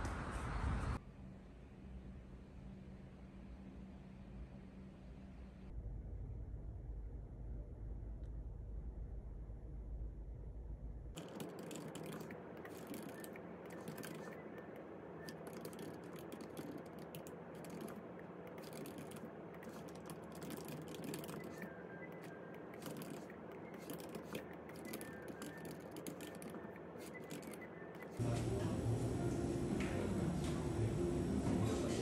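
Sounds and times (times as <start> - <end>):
low rumble: 5.7 - 11.1
quick irregular clicks and taps: 11.2 - 28.2
steady background noise: 11.2 - 32.0.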